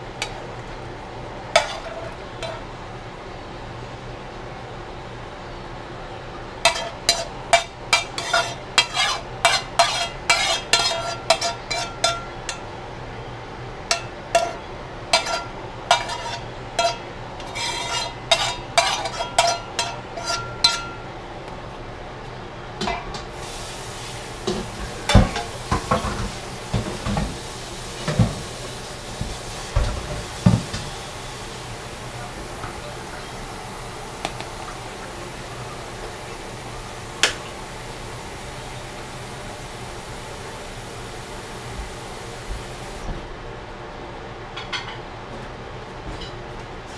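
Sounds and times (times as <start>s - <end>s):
metal spoon scraping frying pan: 1.6s - 2.6s, 6.6s - 12.3s, 13.9s - 21.0s.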